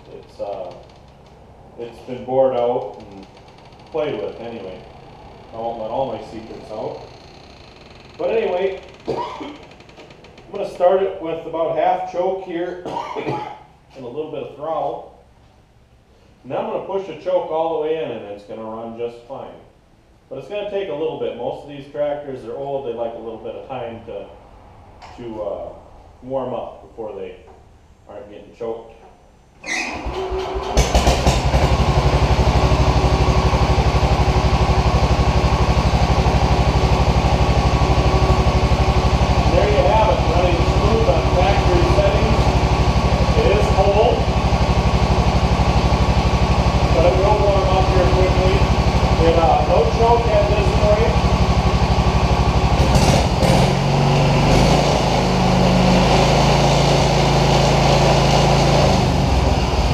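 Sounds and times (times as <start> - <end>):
small engine running: 29.9 - 59.9.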